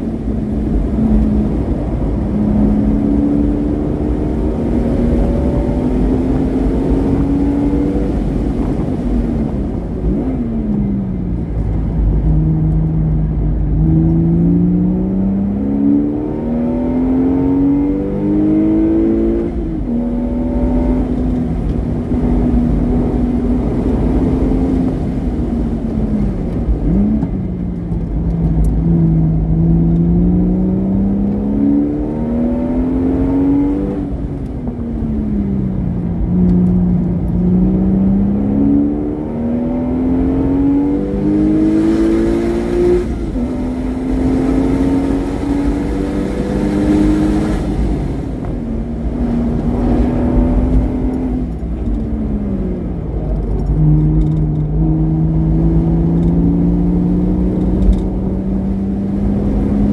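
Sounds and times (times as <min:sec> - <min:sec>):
sports car engine accelerating: 0:00.0 - 0:59.9.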